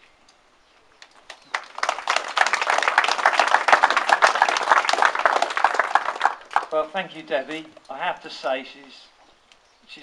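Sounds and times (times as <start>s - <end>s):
crowd applauding: 1.2s - 6.9s.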